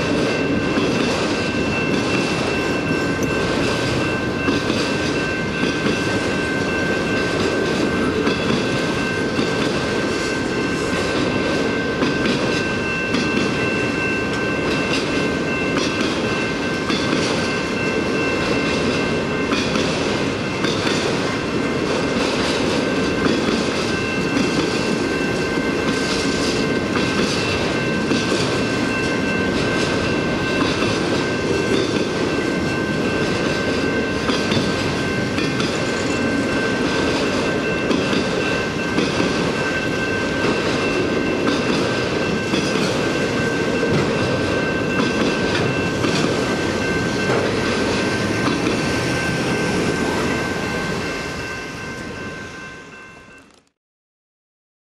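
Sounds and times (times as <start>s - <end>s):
high-pitched ringing: 0.0s - 20.6s, 22.8s - 53.6s
train wheels rumbling on rail: 0.0s - 53.7s
wheels clicking over rail joints: 34.1s - 50.7s.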